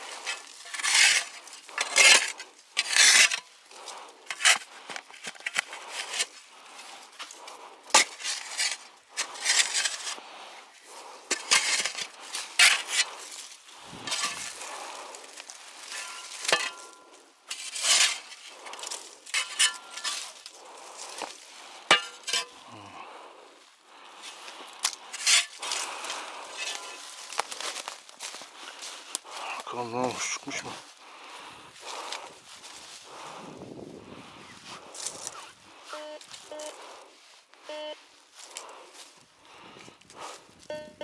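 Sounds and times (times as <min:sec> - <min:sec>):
shovel digging into soil: 0:00.0 - 0:03.6, 0:04.3 - 0:06.4, 0:07.2 - 0:10.2, 0:11.3 - 0:22.6, 0:24.2 - 0:28.3
shovel clinking on stone: 0:00.2 - 0:03.5, 0:14.1 - 0:14.6, 0:15.8 - 0:20.6, 0:21.9 - 0:22.6, 0:24.8 - 0:25.9, 0:26.5 - 0:27.5.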